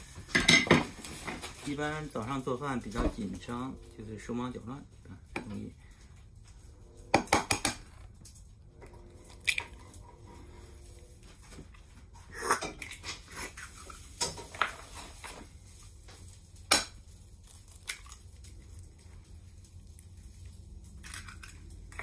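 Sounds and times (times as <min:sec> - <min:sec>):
dishes and utensils clinking: 0:00.2 - 0:01.6.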